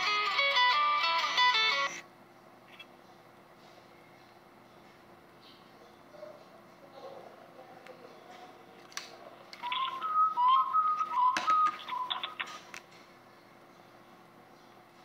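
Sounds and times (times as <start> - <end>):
sharp clicks: 11.4 - 12.9.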